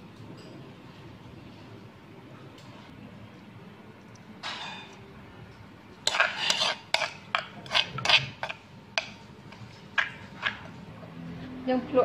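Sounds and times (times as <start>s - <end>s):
metal spoon scraping a mortar: 6.0s - 10.8s.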